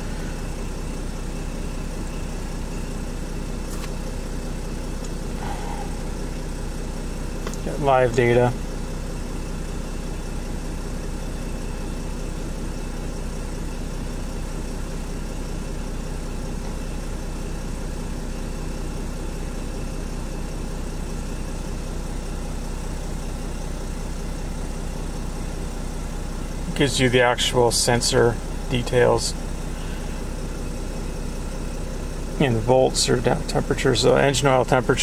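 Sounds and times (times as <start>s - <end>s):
diesel engine idling: 0.0s - 35.0s.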